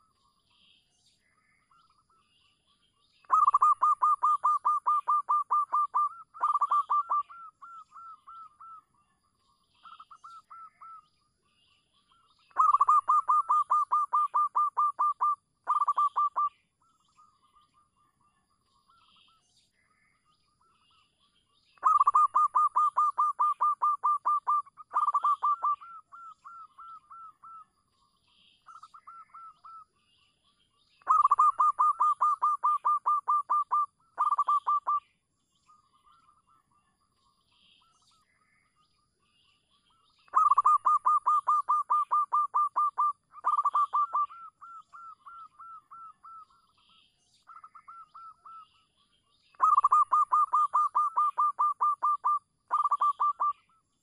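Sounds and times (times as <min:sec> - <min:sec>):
dove cooing song: 0:03.2 - 0:08.8, 0:12.4 - 0:16.6, 0:21.8 - 0:27.7, 0:31.0 - 0:35.0, 0:40.3 - 0:46.6, 0:47.5 - 0:48.6, 0:49.5 - 0:53.8.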